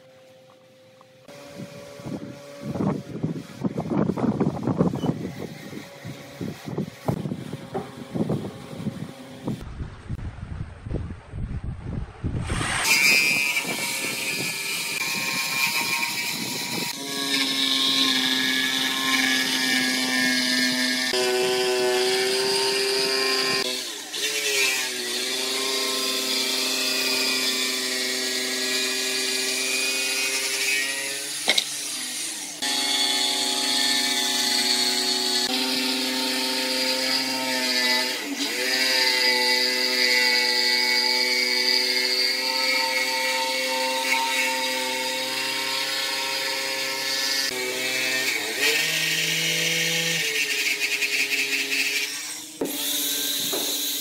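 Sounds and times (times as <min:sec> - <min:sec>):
electric jigsaw cutting wood: 0:12.4 - 0:54.0.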